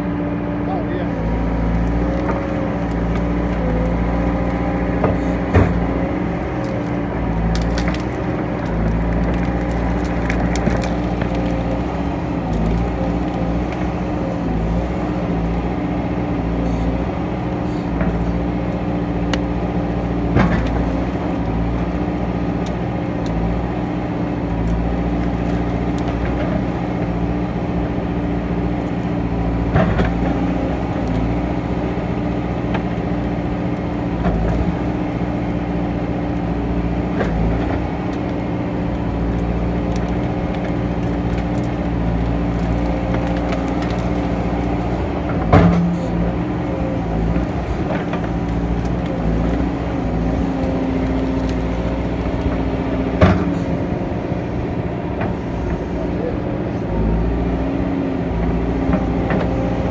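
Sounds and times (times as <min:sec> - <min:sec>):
diesel engine running: 0:00.0 - 0:59.9
bucket cracking through sticks: 0:01.7 - 0:14.6, 0:37.2 - 0:46.3, 0:47.0 - 0:53.6.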